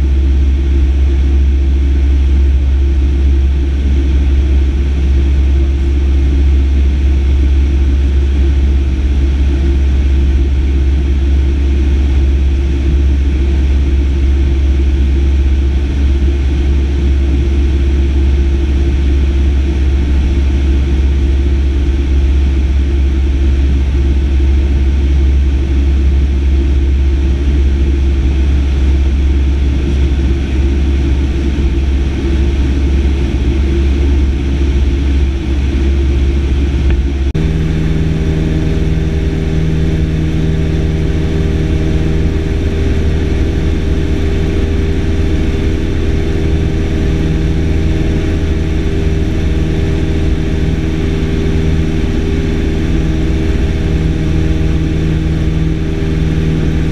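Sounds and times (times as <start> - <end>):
light aircraft engine droning: 0.0 - 56.9.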